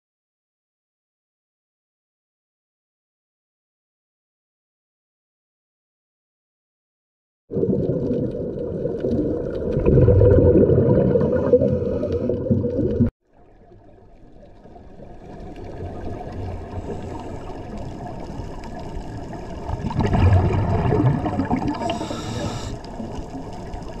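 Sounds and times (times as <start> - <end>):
underwater regulator bubbling: 7.5 - 13.1, 15.6 - 24.0.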